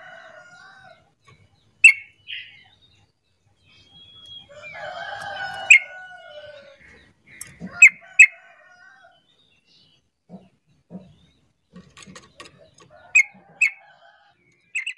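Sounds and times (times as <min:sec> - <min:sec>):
bird giving sharp calls: 0:01.8 - 0:02.6, 0:05.4 - 0:06.0.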